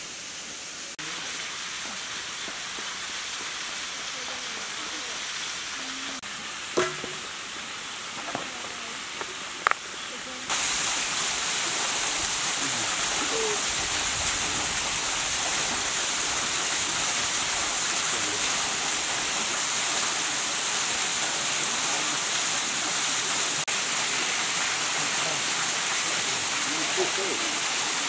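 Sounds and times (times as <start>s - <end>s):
waterfall roaring: 8.2s - 28.0s.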